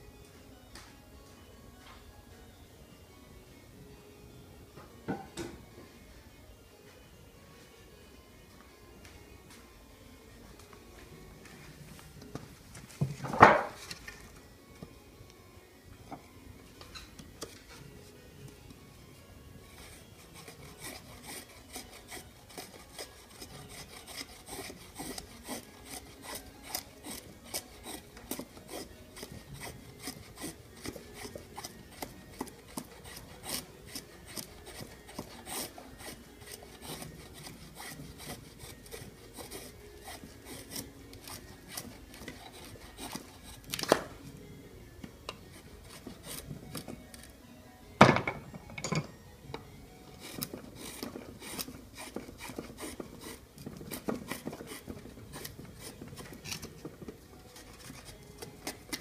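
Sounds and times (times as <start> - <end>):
knife scraping wooden stick: 19.7 - 44.2, 45.3 - 47.3, 50.0 - 59.0.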